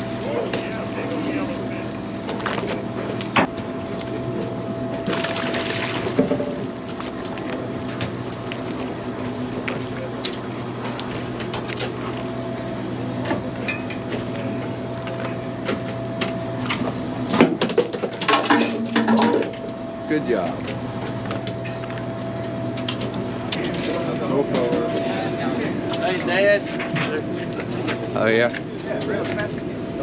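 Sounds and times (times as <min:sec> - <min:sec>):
boat machinery drone: 0:00.0 - 0:30.0
water washing along hull: 0:04.2 - 0:08.3.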